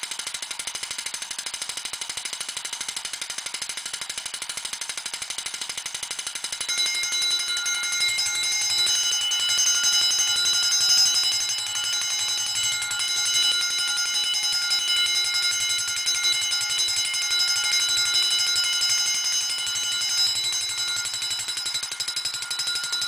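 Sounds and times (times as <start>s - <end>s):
alarm bell ringing: 6.4s - 23.0s.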